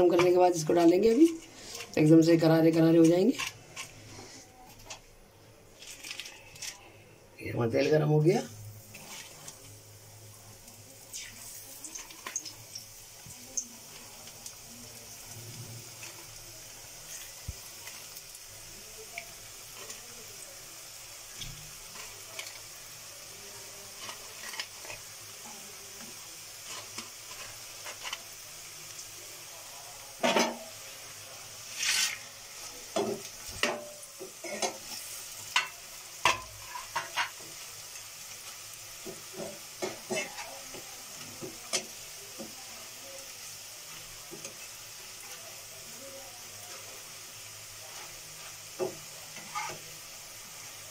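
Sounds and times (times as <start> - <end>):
chips sizzling in hot oil: 0.0 - 50.9
metal spatula scraping a wok: 1.0 - 5.0, 8.9 - 9.7, 31.6 - 32.4, 33.0 - 37.5, 47.9 - 50.0.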